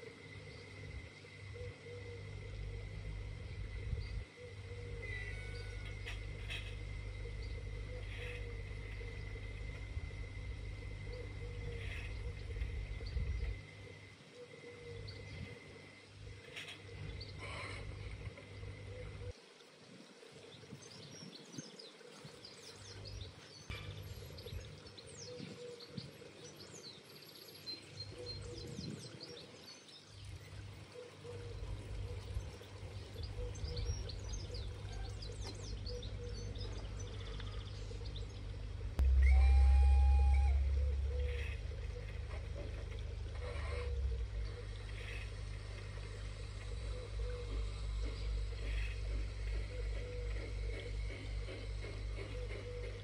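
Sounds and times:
faint steady hum: 0:00.0 - 0:53.0
birds chirping: 0:20.8 - 0:53.0
wind on microphone: 0:28.4 - 0:29.3.

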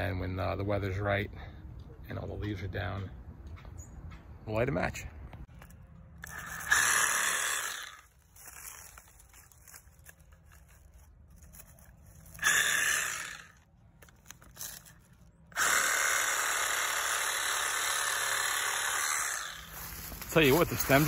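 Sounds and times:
reciprocating saw cutting stems: 0:05.6 - 0:21.0.

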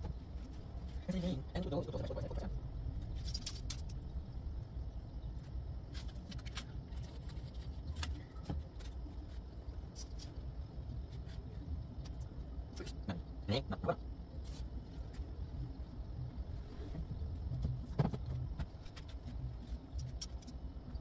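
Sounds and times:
low background rumble: 0:00.0 - 0:21.0.

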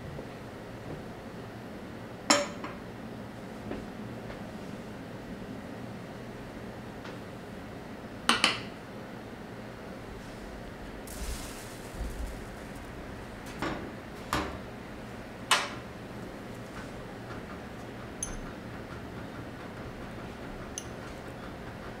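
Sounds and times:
steady hiss: 0:10.9 - 0:13.6.

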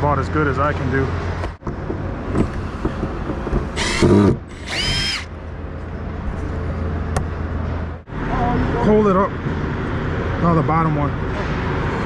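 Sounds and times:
cordless drill motor whine: 0:03.8 - 0:05.3.

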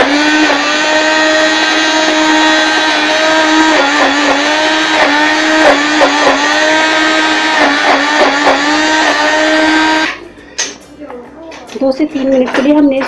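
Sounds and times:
hand blender motor whine: 0:00.0 - 0:10.2.

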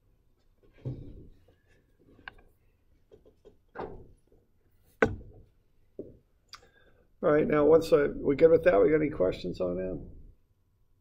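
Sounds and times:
knocks and thumps on desk: 0:05.0 - 0:06.2.

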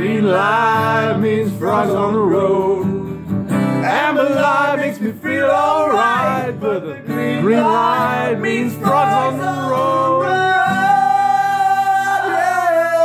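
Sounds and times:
man singing: 0:00.0 - 0:13.0
strummed acoustic guitar: 0:00.0 - 0:13.0.

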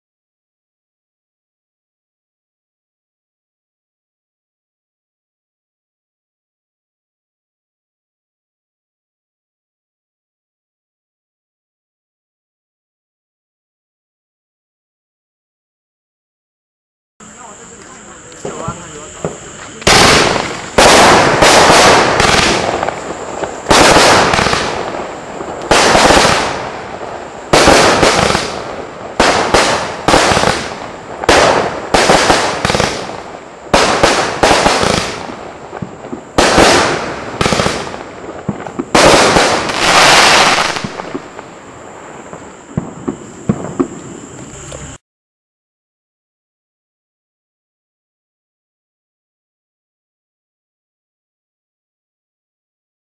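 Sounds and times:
firework crackle: 0:17.2 - 0:45.0
firework shots and aerial bursts: 0:17.2 - 0:45.0.

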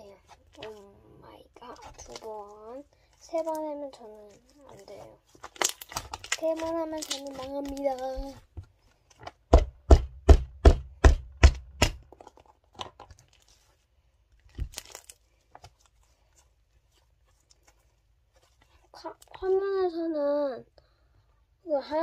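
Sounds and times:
slime popping: 0:04.7 - 0:08.4, 0:14.4 - 0:15.7.

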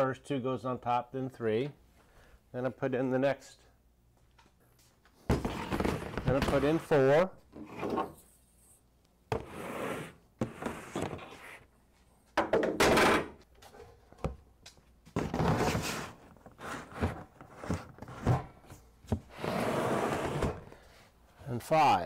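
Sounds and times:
plastic bins knocking: 0:05.3 - 0:06.9
plastic bins scraping: 0:05.3 - 0:08.2, 0:09.4 - 0:11.7, 0:15.1 - 0:20.9.

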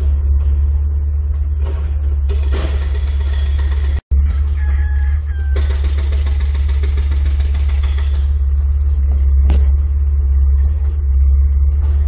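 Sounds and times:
loud low steady drone: 0:00.0 - 0:12.0
hydraulic breaker hammering rock: 0:02.3 - 0:04.0, 0:05.6 - 0:08.5.

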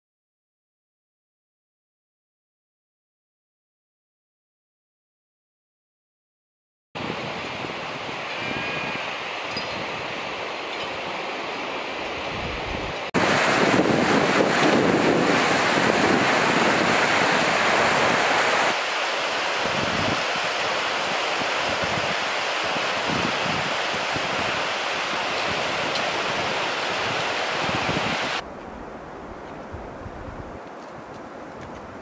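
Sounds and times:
torrent rushing over rocks: 0:13.2 - 0:28.4.

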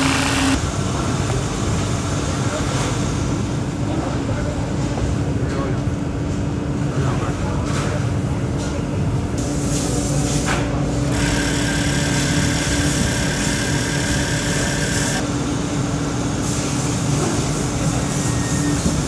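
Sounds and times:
higher machine whirring: 0:00.0 - 0:00.6, 0:11.1 - 0:15.2
machinery hum and whir: 0:00.0 - 0:19.0.

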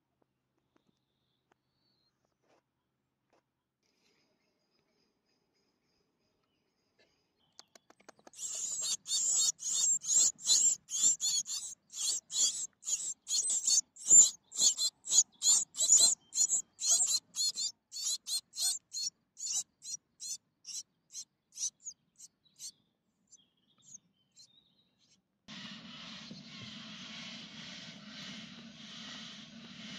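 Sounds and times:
nestlings begging calls: 0:08.3 - 0:22.7.

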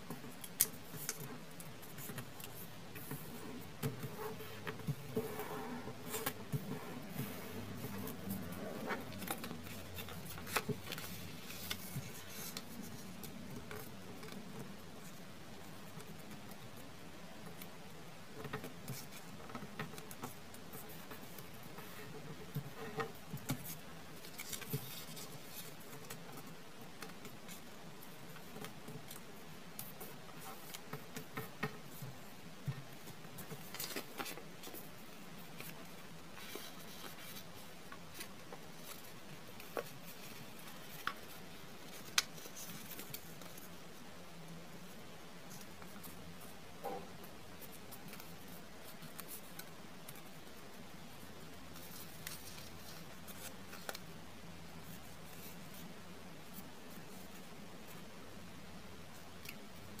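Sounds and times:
paper being folded: 0:00.4 - 0:14.4, 0:23.6 - 0:31.3, 0:32.9 - 0:43.9, 0:47.5 - 0:50.6, 0:51.2 - 0:54.1.

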